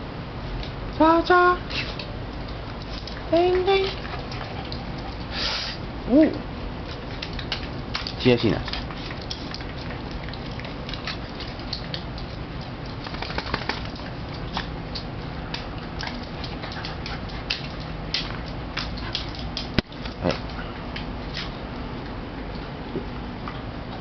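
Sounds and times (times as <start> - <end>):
dog claws clicking on wooden floor: 6.9 - 21.5.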